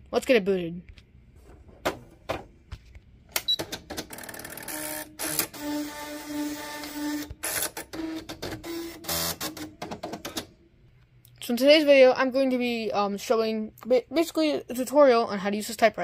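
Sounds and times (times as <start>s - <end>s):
print mechanism whirring: 3.7s - 10.5s.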